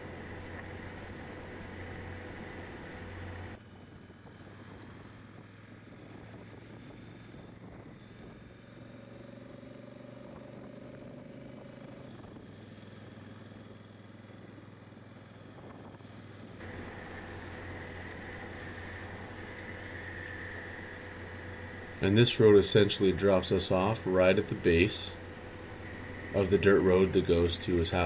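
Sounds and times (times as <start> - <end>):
motorcycle engine running: 0.0 - 5.2, 16.6 - 28.0.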